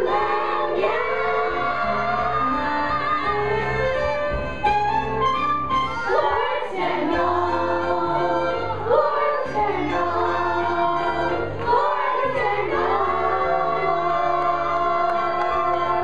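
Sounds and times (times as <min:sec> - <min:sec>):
children's chorus singing: 0:00.0 - 0:03.9, 0:06.0 - 0:16.0
instrumental accompaniment: 0:00.0 - 0:16.0.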